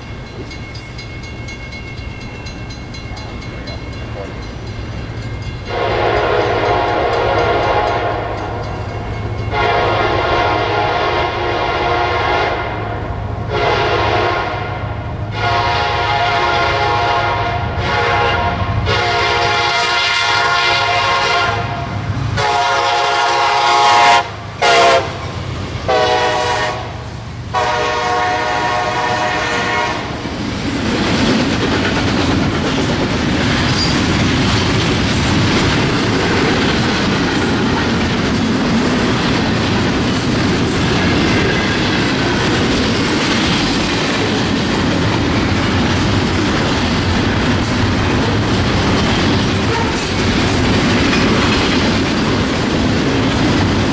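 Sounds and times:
train wheels clattering on rails: 0.0s - 11.1s, 28.5s - 53.9s
train horn blasts: 5.7s - 8.7s, 9.5s - 30.2s, 49.6s - 50.2s.

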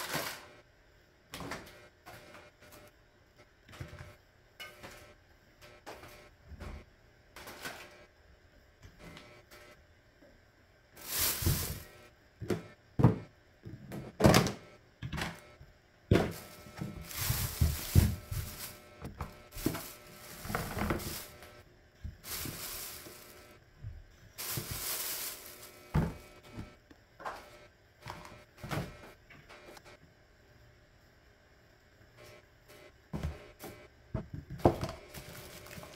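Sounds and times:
plastic bags rustling: 0.0s - 0.5s, 11.0s - 11.9s, 16.1s - 21.6s, 22.2s - 23.6s, 24.4s - 26.2s, 35.0s - 35.9s.

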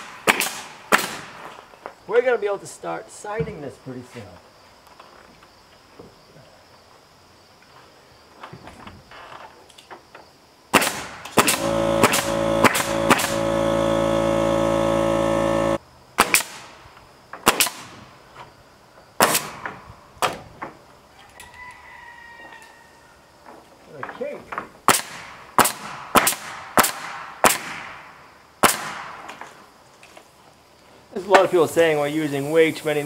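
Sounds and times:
nail gun firing: 0.0s - 1.4s, 10.7s - 16.8s, 17.4s - 18.0s, 19.2s - 19.8s, 24.8s - 28.0s, 28.6s - 29.3s
air compressor motor humming: 11.4s - 15.8s.

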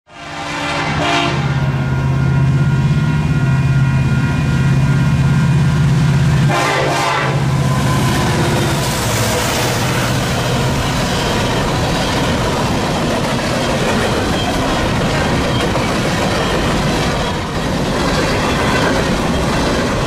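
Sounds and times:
train horn: 0.1s - 10.2s
diesel locomotive engine passing: 0.1s - 20.0s.

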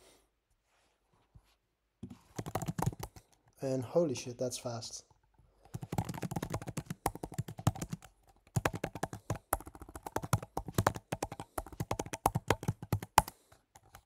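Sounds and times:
keyboard typing: 2.0s - 3.4s, 5.6s - 14.0s.

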